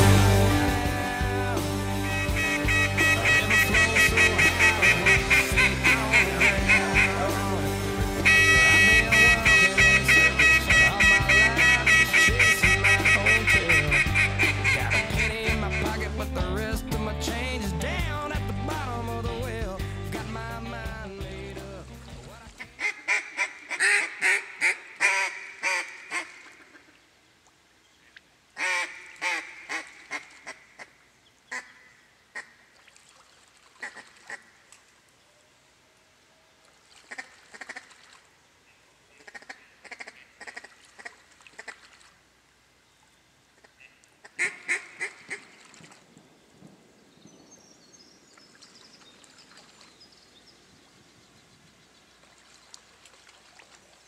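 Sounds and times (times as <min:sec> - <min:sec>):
duck call quacks: 0:01.9 - 0:16.0, 0:22.6 - 0:26.9, 0:28.6 - 0:30.9, 0:31.5 - 0:32.6, 0:33.8 - 0:34.5, 0:37.1 - 0:37.9, 0:39.2 - 0:41.8, 0:43.6 - 0:45.5.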